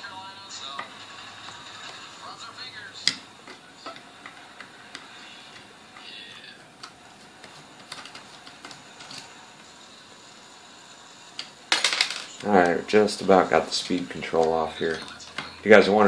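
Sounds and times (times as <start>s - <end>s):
screwdriver clicking and scraping metal: 3.0s - 9.3s.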